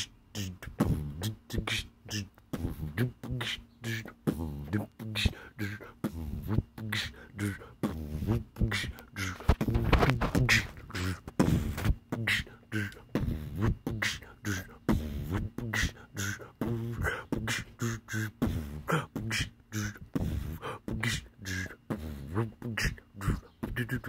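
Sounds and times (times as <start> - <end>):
hummed low notes: 0.0 - 24.0
man beatboxing: 0.0 - 24.0.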